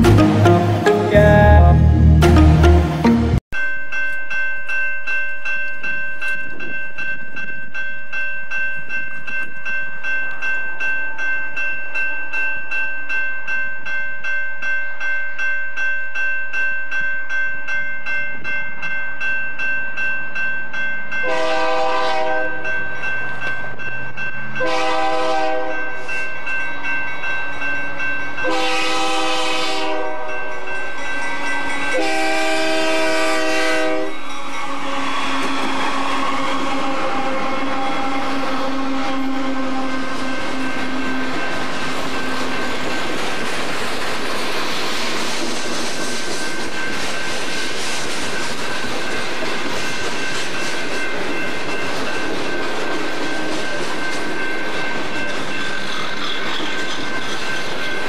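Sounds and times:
railroad crossing bell ringing: 0:02.9 - 0:44.6, 0:46.0 - 0:58.0
low rumble of train: 0:03.8 - 0:58.0
locomotive air horn blasts: 0:21.2 - 0:22.6, 0:24.6 - 0:25.8, 0:28.4 - 0:30.3, 0:31.9 - 0:40.2.

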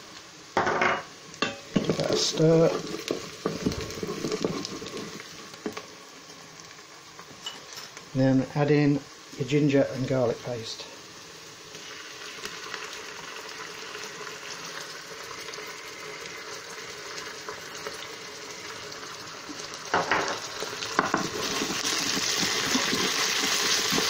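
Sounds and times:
onions sizzling in hot oil: 0:00.0 - 0:24.0
wooden spoon stirring: 0:01.8 - 0:05.8.

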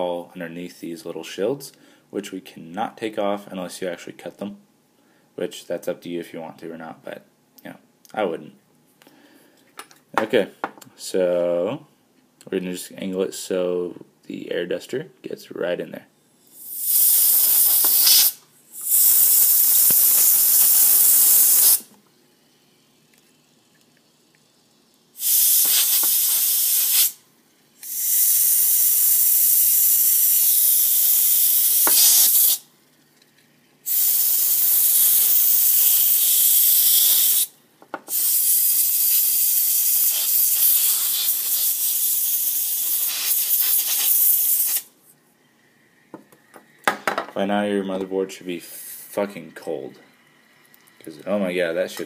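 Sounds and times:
compressed air duster hissing: 0:16.4 - 0:22.7, 0:24.0 - 0:27.2, 0:27.8 - 0:32.7, 0:33.8 - 0:37.5, 0:38.1 - 0:44.9.

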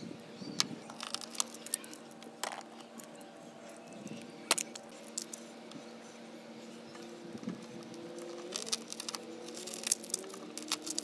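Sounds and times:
glass fragments clicking: 0:00.9 - 0:02.6, 0:08.3 - 0:11.0.

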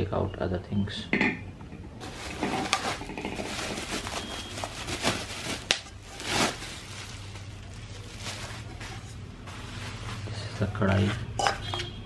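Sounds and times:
bubble wrap crinkling: 0:02.0 - 0:10.5.

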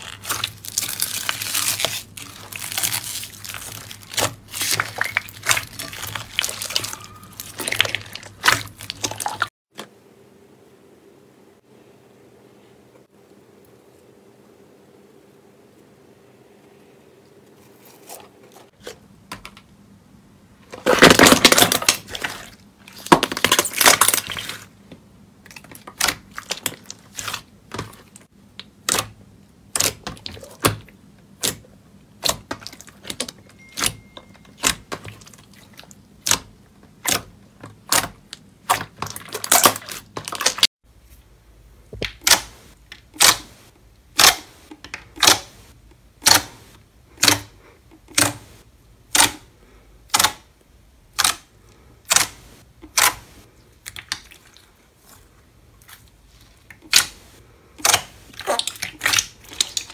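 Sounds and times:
wet slime squelching: 0:00.0 - 0:09.5, 0:20.7 - 0:24.8, 0:25.4 - 0:40.7, 0:41.9 - 0:59.9.

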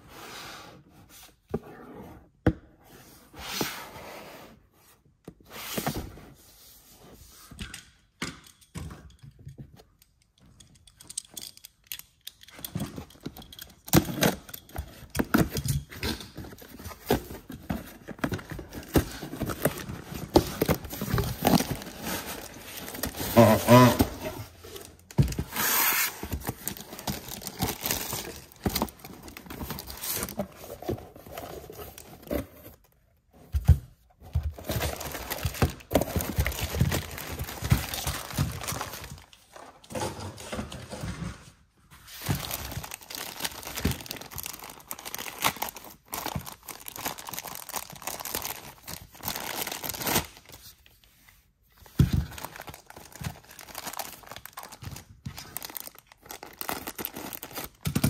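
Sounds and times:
plastic bags crinkling: 0:16.2 - 0:25.5, 0:26.2 - 0:32.1, 0:34.6 - 0:39.6, 0:42.3 - 0:50.6, 0:52.2 - 0:58.0.

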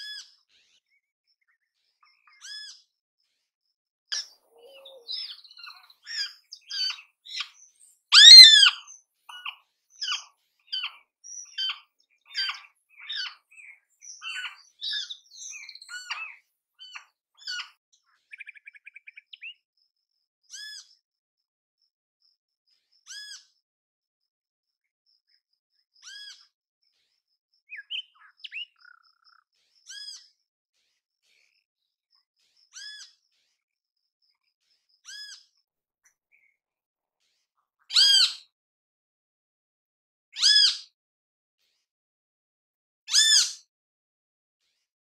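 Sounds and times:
bird calling: 0:04.1 - 0:13.4, 0:14.1 - 0:17.7.

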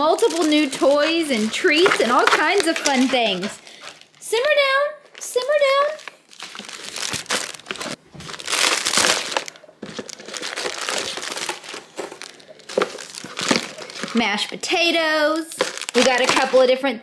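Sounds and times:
hands rummaging through cardboard box: 0:00.0 - 0:04.0, 0:06.0 - 0:14.3, 0:15.6 - 0:16.6
plastic packaging crinkling: 0:00.0 - 0:04.2, 0:05.0 - 0:16.7.

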